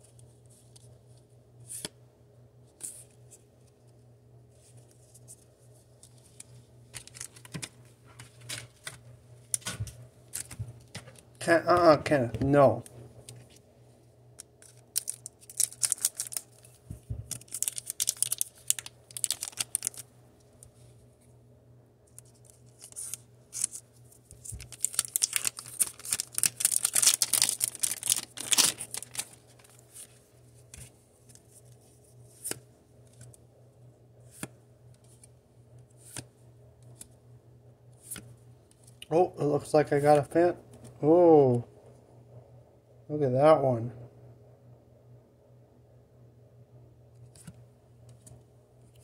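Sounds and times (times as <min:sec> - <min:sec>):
foil wrapper crinkling: 0:07.0 - 0:07.5, 0:14.6 - 0:20.1, 0:22.2 - 0:30.1.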